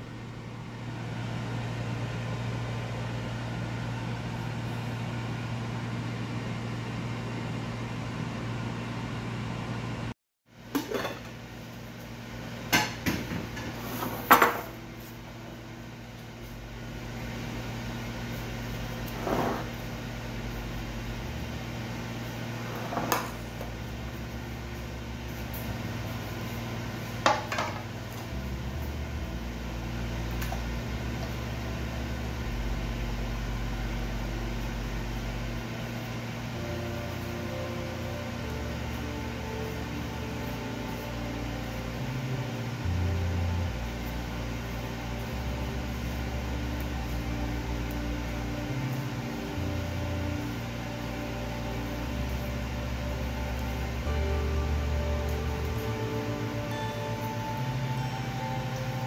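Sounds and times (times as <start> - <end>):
steady low hum: 0.0 - 59.0
dishes knocking on countertop: 12.7 - 13.7.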